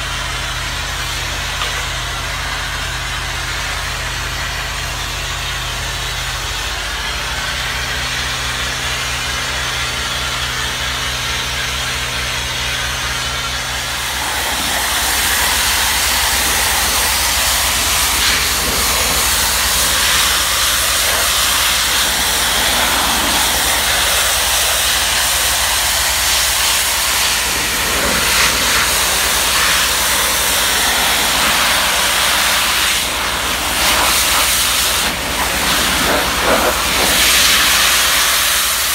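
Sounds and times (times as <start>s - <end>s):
engine humming: 0.0s - 38.9s
pressure washer spray hissing: 12.6s - 38.9s.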